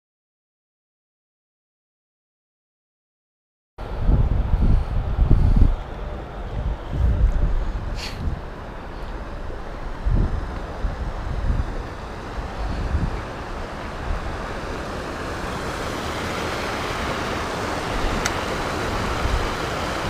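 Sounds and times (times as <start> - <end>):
wind rumble on microphone: 3.8 - 20.0
river water rushing over rocks: 5.9 - 20.0.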